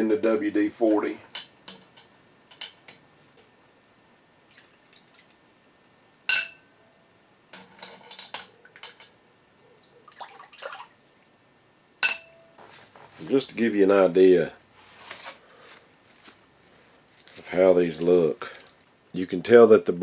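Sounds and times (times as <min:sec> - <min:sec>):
water drips: 0:04.4 - 0:05.4, 0:10.0 - 0:11.3.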